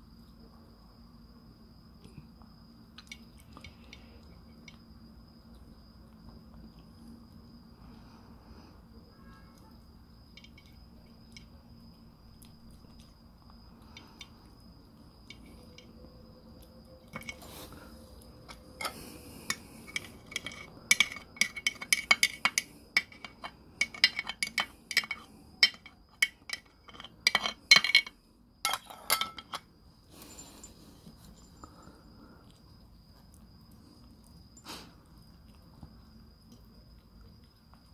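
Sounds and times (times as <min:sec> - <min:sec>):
metal spoon clinking on ceramic dish: 0:19.9 - 0:29.6.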